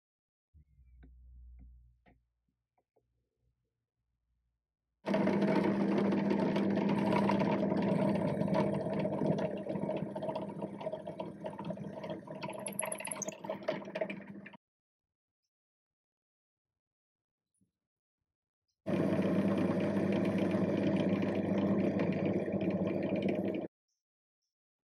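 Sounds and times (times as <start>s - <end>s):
drill bit drilling wood: 5.1s - 10.2s, 18.9s - 23.7s
drill press motor humming: 5.1s - 11.9s, 18.9s - 23.7s.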